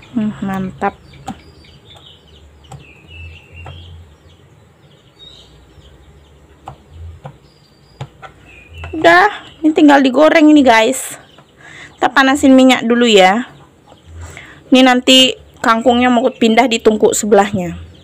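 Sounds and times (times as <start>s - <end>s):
birds chirping faintly: 0.0s - 18.0s.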